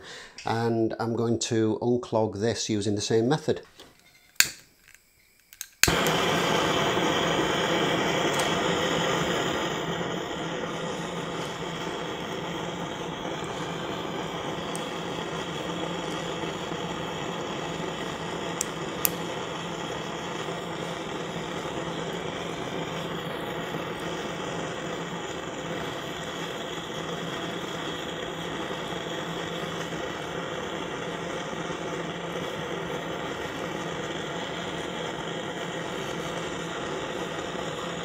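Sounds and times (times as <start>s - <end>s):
sharp metallic clicks: 4.3s - 6.0s
blowlamp flame rushing: 4.4s - 38.0s.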